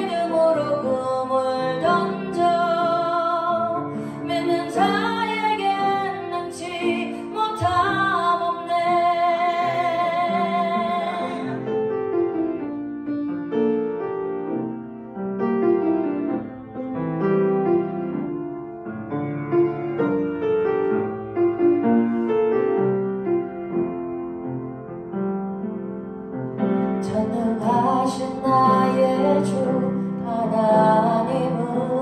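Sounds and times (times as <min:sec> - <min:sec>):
piano playing hymn chords: 0:00.0 - 0:32.0.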